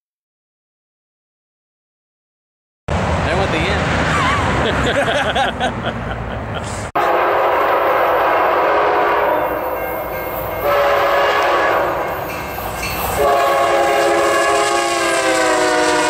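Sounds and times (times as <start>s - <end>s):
train horn blasts: 7.0s - 12.4s, 13.1s - 16.0s.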